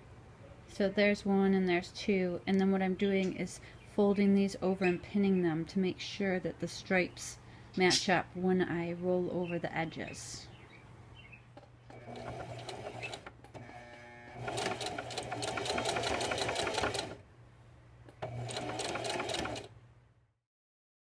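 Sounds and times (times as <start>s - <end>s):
sewing machine stitching: 11.9s - 17.2s, 18.2s - 19.7s.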